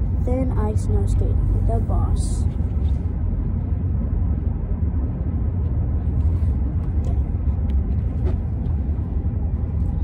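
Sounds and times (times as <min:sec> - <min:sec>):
car cabin rumble: 0:00.0 - 0:10.0.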